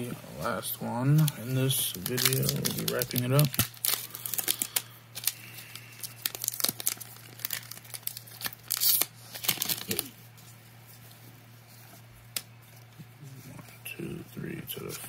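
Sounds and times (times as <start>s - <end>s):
foil wrapper crinkling and tearing: 1.1s - 10.3s.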